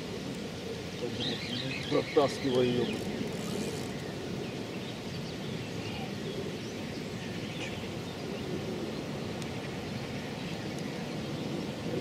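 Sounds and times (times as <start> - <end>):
outdoor background noise: 0.0 - 12.0
faint bird chirps: 1.0 - 4.1.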